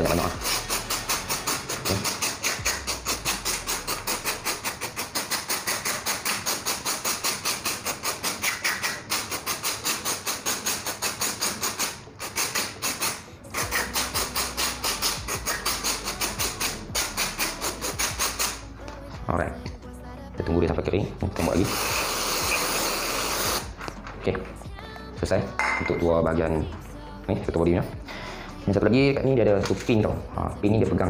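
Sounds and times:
aerosol spray hissing: 0.0s - 18.7s, 21.4s - 23.7s.

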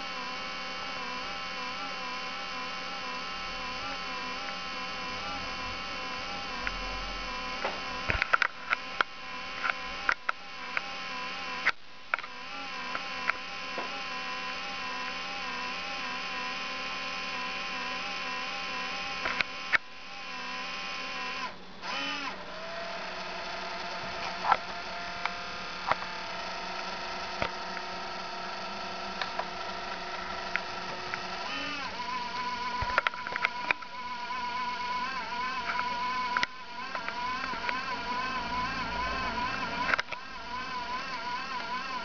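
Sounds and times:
cooling fan whining: 0.0s - 42.0s
scattered clicks: 7.6s - 14.0s, 19.2s - 19.9s, 29.1s - 38.2s, 39.4s - 42.0s.

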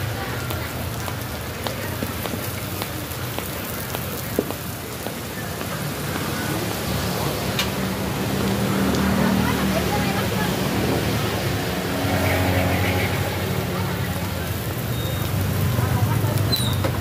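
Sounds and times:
batter sizzling in a wok: 11.9s - 17.0s.

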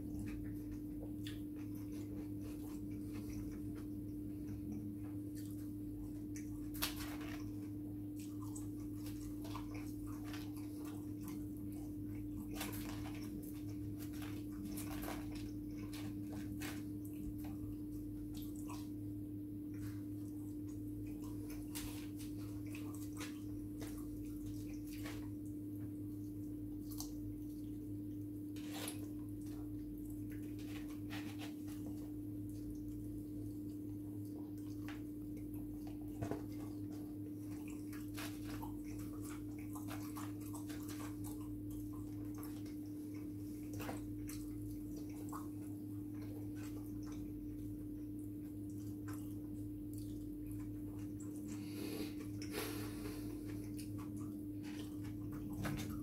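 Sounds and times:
chewing smacks: 0.0s - 56.0s
low electrical hum: 0.0s - 56.0s.

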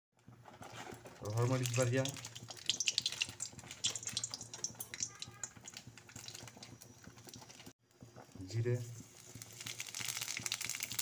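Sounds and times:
chillies sizzling in hot oil: 0.3s - 11.0s
sharp popping in oil: 1.4s - 7.7s.

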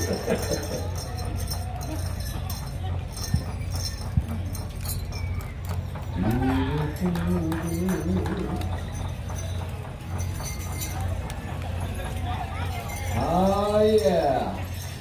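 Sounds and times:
leg bells jingling: 0.0s - 15.0s.

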